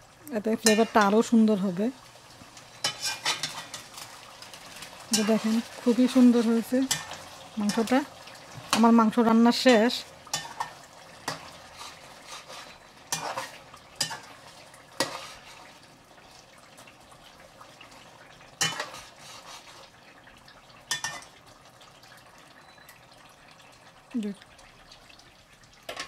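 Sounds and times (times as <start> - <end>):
metal spatula scraping a pot: 0.6 - 1.2, 2.8 - 7.9, 9.6 - 14.4, 15.0 - 15.8, 18.6 - 20.0.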